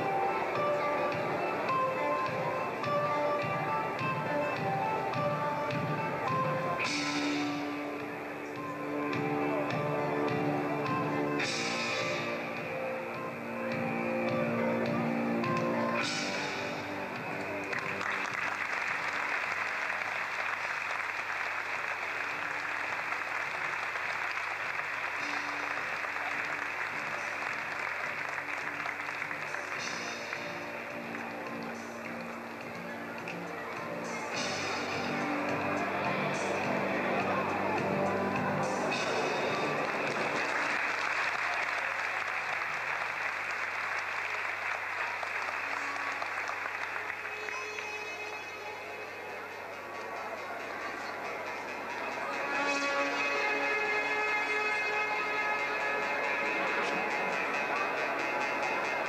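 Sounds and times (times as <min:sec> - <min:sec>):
audience applauding: 0:13.6 - 0:59.0.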